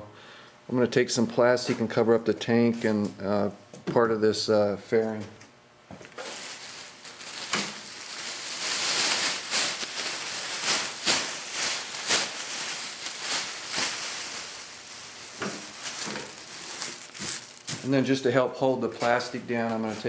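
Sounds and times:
plastic sheeting rustling: 6.0 - 18.3, 18.9 - 20.0.

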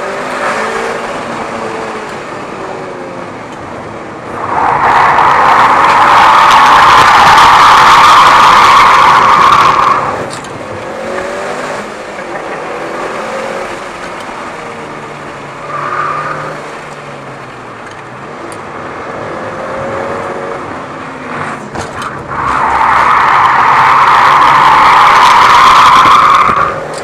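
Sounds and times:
race car engine revving: 4.2 - 16.9, 19.4 - 27.0.

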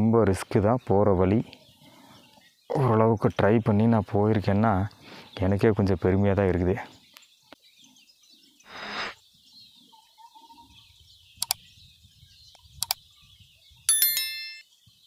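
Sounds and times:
faint forest ambience: 0.0 - 13.9
thin bird call: 8.6 - 9.2
crisp mouse clicks: 11.4 - 11.6, 12.8 - 13.0.

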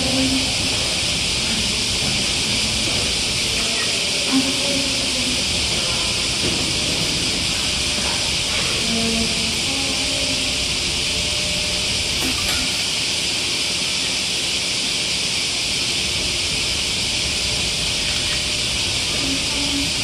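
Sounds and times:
steady high hiss: 0.0 - 20.0.

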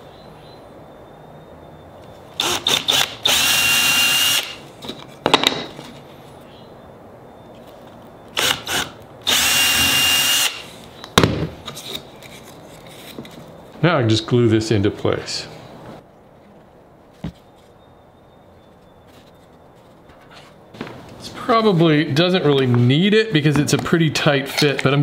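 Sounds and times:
cordless drill motor whine: 2.4 - 4.6, 8.4 - 10.6.

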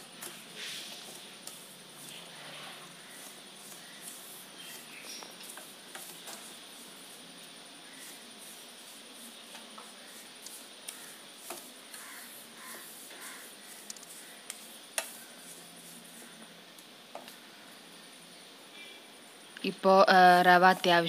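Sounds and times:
spatula scraping semolina: 0.0 - 17.3.

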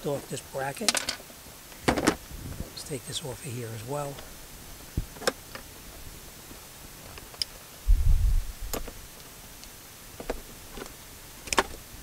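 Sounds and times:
dull low thump: 7.9 - 8.8.

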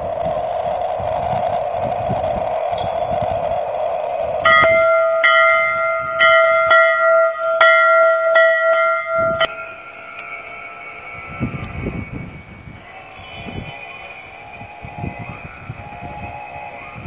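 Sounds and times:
steady hum: 0.0 - 17.0
higher-pitched bell tone: 4.4 - 17.0
large bell ringing: 4.4 - 17.0.

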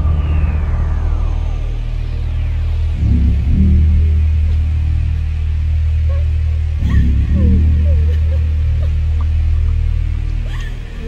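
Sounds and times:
dark ambient drone music: 0.0 - 11.0.

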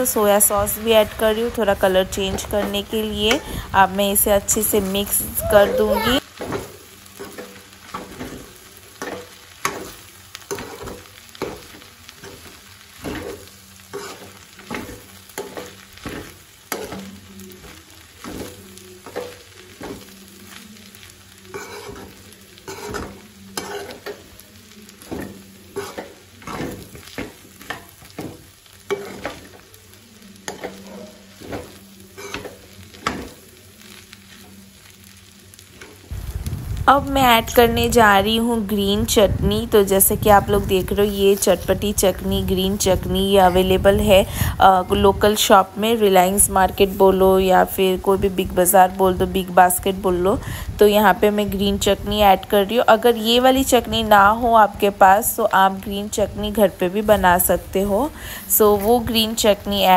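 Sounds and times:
food sizzling: 0.0 - 59.9
metal spoon scraping a pan: 7.2 - 20.2, 21.4 - 29.7, 30.4 - 33.4.

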